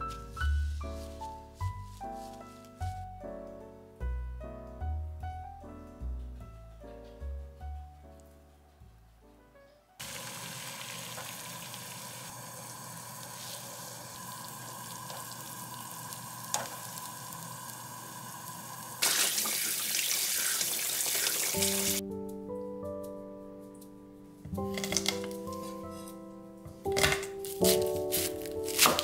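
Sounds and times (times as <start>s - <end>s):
music: 0.0s - 10.0s, 21.6s - 29.0s
kitchen tap running: 10.0s - 22.0s
water boiling in pot: 10.0s - 22.0s.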